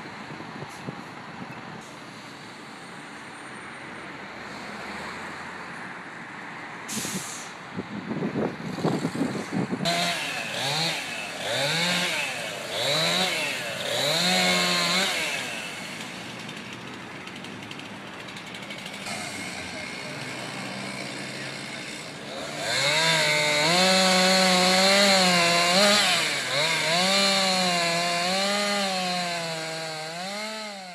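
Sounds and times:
short hiss: 0:06.9 - 0:07.6
engine running and revving: 0:08.6 - 0:17.8, 0:18.4 - 0:30.9.

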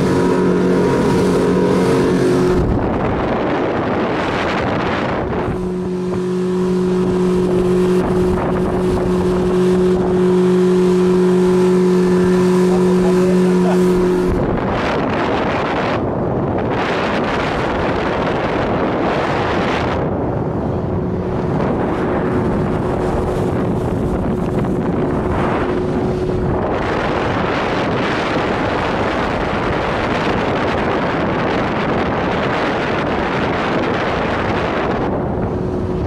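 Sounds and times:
motorboat engine drone: 0:00.0 - 0:36.0
rushing water: 0:00.0 - 0:36.0
wind buffeting microphone: 0:00.0 - 0:36.0.

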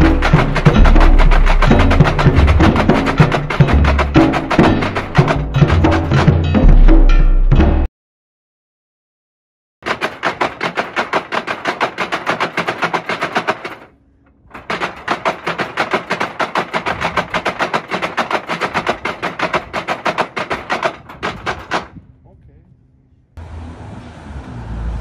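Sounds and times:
wooden strikers rattling: 0:00.0 - 0:05.6, 0:09.8 - 0:13.9, 0:14.5 - 0:22.0.

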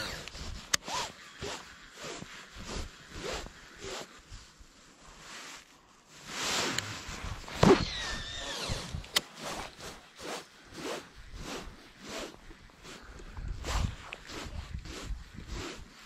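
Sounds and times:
fishing reel whirring: 0:00.0 - 0:02.2, 0:07.6 - 0:12.3.

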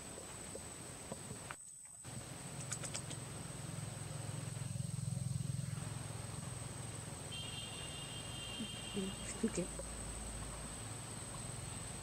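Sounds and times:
engine running with pulsing hum: 0:02.0 - 0:07.3.

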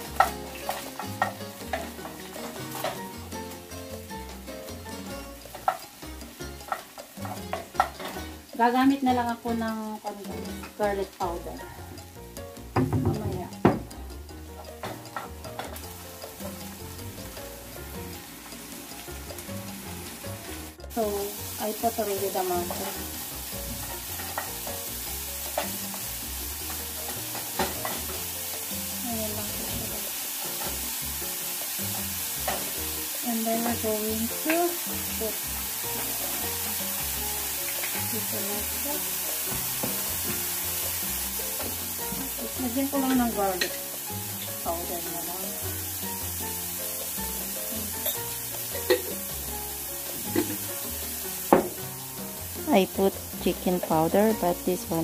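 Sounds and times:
background music: 0:00.0 - 0:55.0
vegetables sizzling in a frying pan: 0:00.0 - 0:55.0
spatula knocking against pan: 0:12.6 - 0:14.0.

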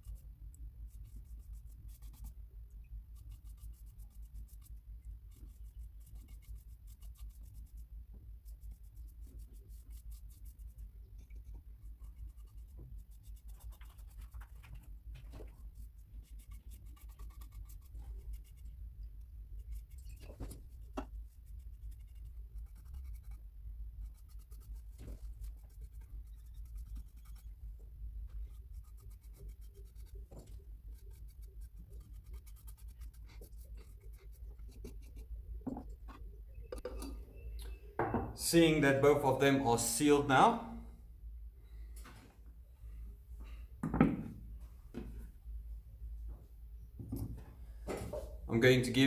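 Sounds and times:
low steady hum: 0:00.0 - 0:49.0
paintbrush strokes on wood: 0:03.1 - 0:18.9, 0:19.5 - 0:35.3.

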